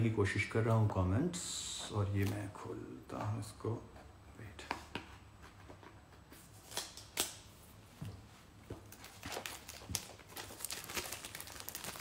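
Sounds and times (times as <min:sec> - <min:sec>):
cardboard and wrapping crinkling: 0:08.8 - 0:12.0.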